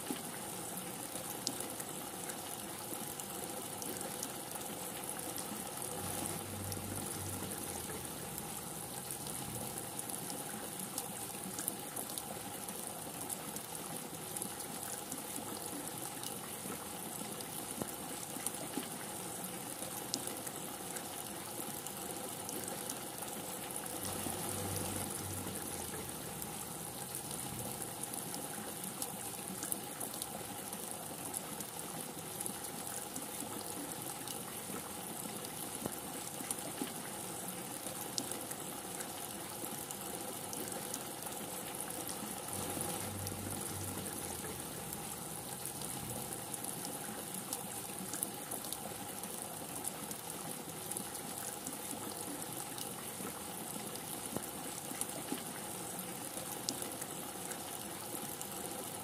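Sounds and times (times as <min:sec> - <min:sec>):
rain falling: 0:00.0 - 0:59.0
faint low rumble: 0:05.9 - 0:10.0, 0:42.6 - 0:46.5.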